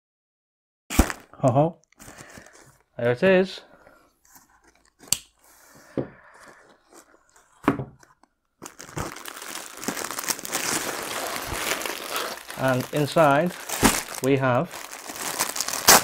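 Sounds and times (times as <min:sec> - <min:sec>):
tape ripping: 0:00.9 - 0:01.3, 0:08.6 - 0:16.0
plastic wrapping crinkling: 0:06.3 - 0:16.0
cardboard box tearing: 0:08.7 - 0:14.2, 0:14.8 - 0:16.0.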